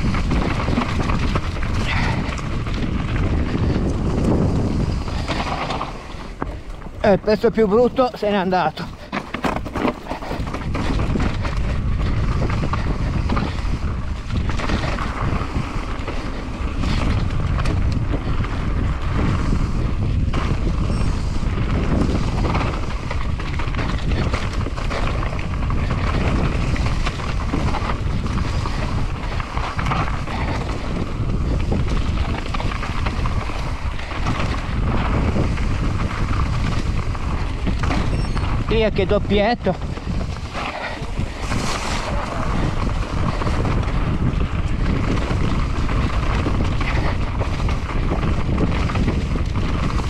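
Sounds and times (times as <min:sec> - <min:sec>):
bike knocks and rattles: 0:00.0 - 0:08.1, 0:08.7 - 0:50.0
tyres rolling on rough trail: 0:00.0 - 0:50.0
wind buffeting microphone: 0:00.0 - 0:50.0.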